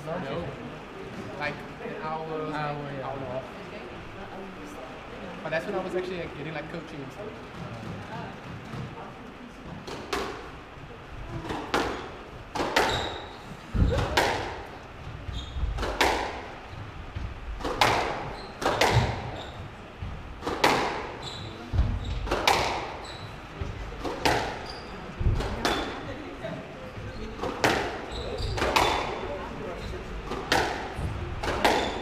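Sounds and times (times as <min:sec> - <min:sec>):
squash ball hits: 0:09.8 - 0:10.5, 0:11.4 - 0:26.1, 0:27.4 - 0:29.4, 0:30.2 - 0:32.0
shoes squeaking on wooden floor: 0:11.3 - 0:16.0, 0:16.6 - 0:30.3, 0:31.0 - 0:32.0.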